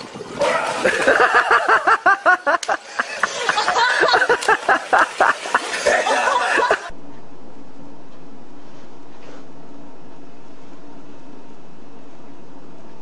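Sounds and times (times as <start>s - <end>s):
person laughing hard: 0.7s - 6.9s
steady low hum: 6.4s - 13.0s.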